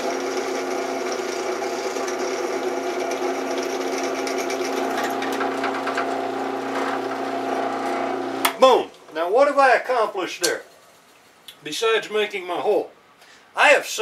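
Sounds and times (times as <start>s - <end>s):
drill bit cutting metal: 0.0s - 8.5s
drill press motor hum: 0.0s - 8.6s.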